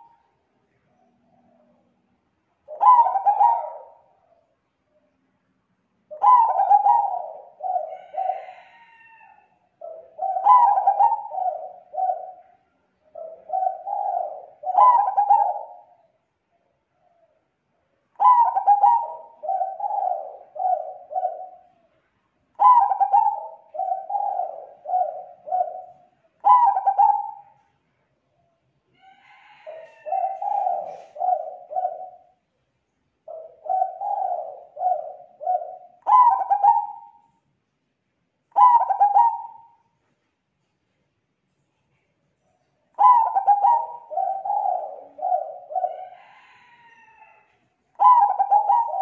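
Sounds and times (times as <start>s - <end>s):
dove cooing: 0.0s - 2.0s, 2.6s - 4.5s, 6.1s - 17.4s, 18.1s - 21.9s, 22.6s - 27.7s, 29.0s - 32.4s, 33.2s - 37.3s, 38.5s - 39.9s, 42.9s - 49.0s.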